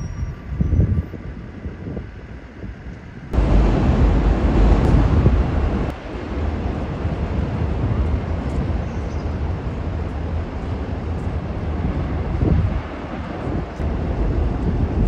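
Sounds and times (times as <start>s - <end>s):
wind buffeting microphone: 0.0s - 15.0s
outdoor rumble: 3.4s - 8.4s.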